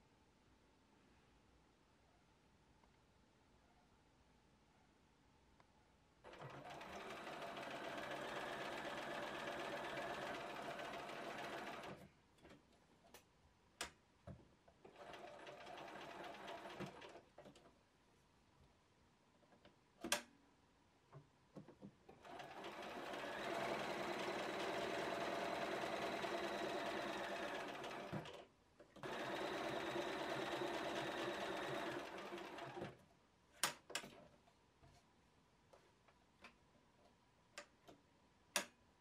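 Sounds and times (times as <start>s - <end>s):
sewing machine stitching: 6.3s - 12.1s, 14.8s - 17.6s, 22.1s - 33.0s.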